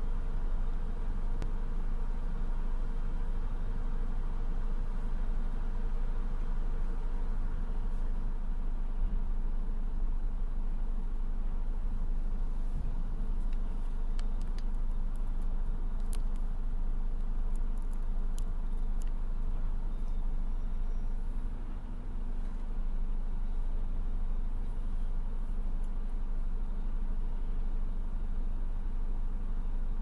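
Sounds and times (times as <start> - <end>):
diesel engines rumbling: 0.0 - 30.0
faint sharp clicks: 13.4 - 16.5.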